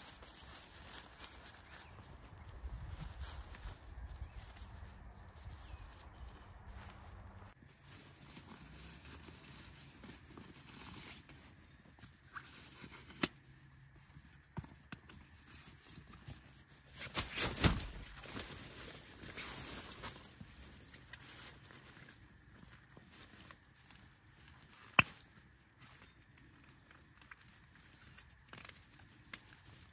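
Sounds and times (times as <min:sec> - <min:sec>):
footsteps on forest floor: 0:00.1 - 0:09.0
nylon gear rustling: 0:15.2 - 0:29.9.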